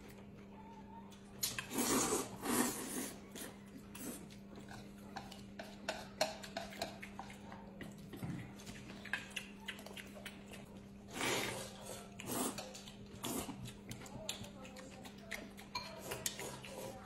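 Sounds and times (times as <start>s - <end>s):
noodle slurp: 1.6s - 3.2s
chewing and lip-smacking: 3.2s - 17.0s.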